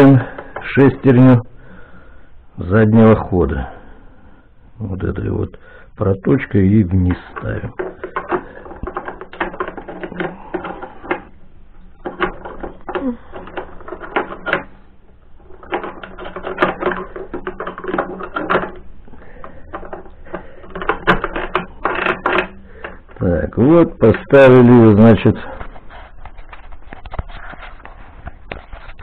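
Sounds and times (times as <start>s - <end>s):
steel gear parts clicking and knocking: 7.1s - 14.8s, 15.4s - 24.6s.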